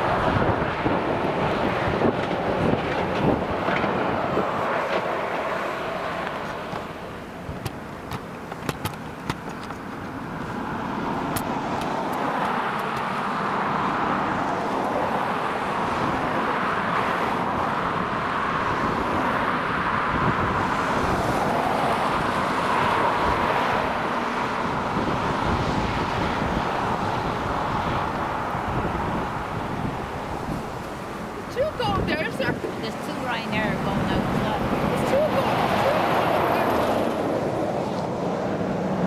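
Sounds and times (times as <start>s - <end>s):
cars passing on road: 0.0s - 39.0s.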